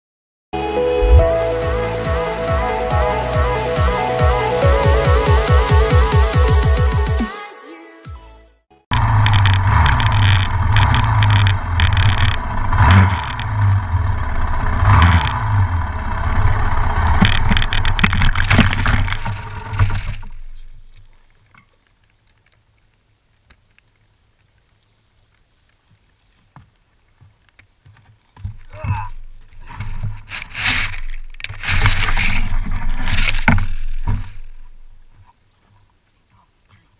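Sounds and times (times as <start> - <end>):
motocross engine running loud: 8.9 - 20.1
faint ticks and rustles: 17.3 - 36.9
knocks and scrapes in brush: 29.4 - 35.9.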